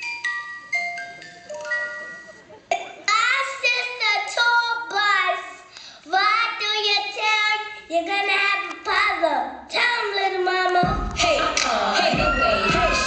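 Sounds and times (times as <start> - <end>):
high-pitched voice singing: 9.8 - 13.0.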